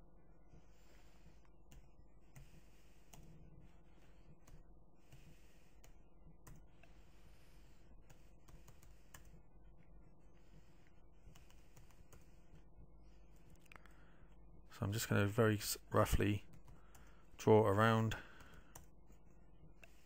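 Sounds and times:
room hum: 0.0s - 20.0s.

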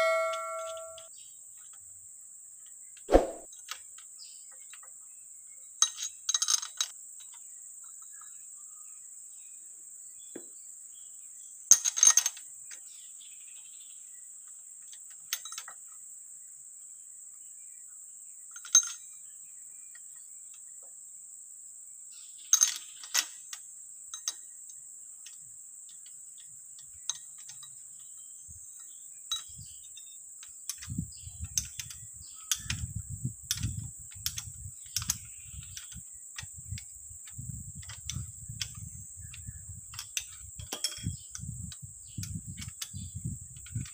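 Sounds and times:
wrench on bolts: 0.0s - 1.0s, 30.7s - 32.9s, 33.5s - 41.5s, 42.1s - 43.9s
metallic clicks and clinks: 0.0s - 1.1s, 11.7s - 12.8s, 18.5s - 19.0s, 24.1s - 24.4s, 28.8s - 43.9s.

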